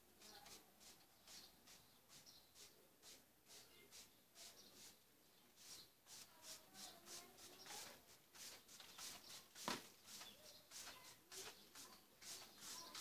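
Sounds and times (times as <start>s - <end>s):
hand brush sweeping brickwork: 0.2s - 13.0s
sharp tap: 9.6s - 9.9s.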